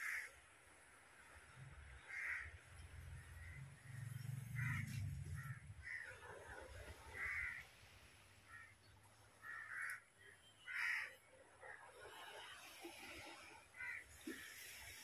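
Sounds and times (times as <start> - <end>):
crows cawing: 0.0 - 0.4, 2.0 - 2.6, 4.6 - 6.2, 7.1 - 7.7, 8.5 - 8.8, 9.4 - 11.2, 13.8 - 14.5.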